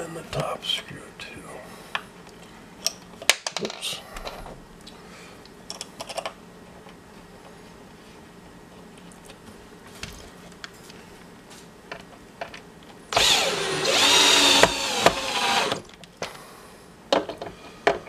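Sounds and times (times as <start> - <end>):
cordless drill motor whine: 13.1 - 15.8.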